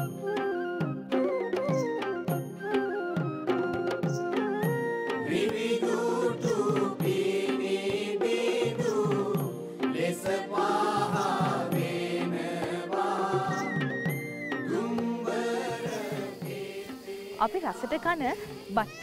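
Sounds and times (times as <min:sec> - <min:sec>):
instrumental music: 0:00.0 - 0:19.0
steady percussion beat: 0:00.0 - 0:19.0
chant-like singing voice: 0:05.2 - 0:18.8.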